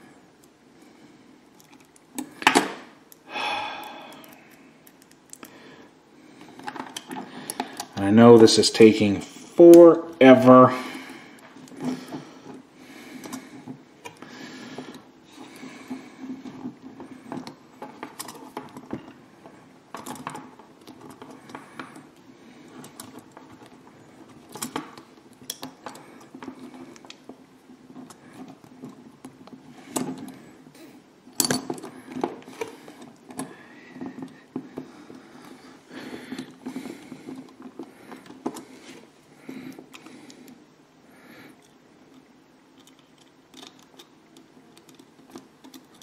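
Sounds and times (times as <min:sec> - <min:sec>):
small plastic parts clicking: 0:03.9 - 0:05.6, 0:06.4 - 0:08.1, 0:19.9 - 0:27.3, 0:41.6 - 0:46.0.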